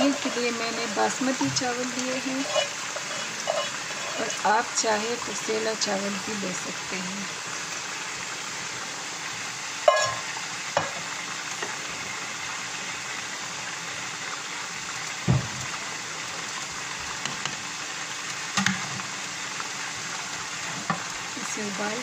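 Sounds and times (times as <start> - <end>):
boiling water hiss: 0.0 - 22.0
spoon knocking steel pot: 9.9 - 11.0.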